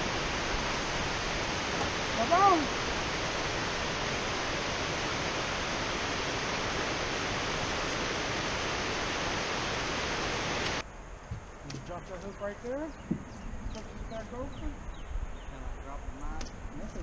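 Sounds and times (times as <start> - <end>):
water rushing from a dam: 0.0 - 10.8.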